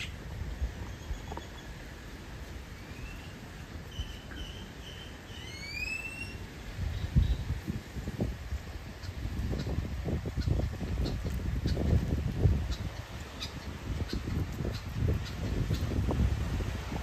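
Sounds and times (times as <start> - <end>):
bird whistling calls: 2.8 - 6.4.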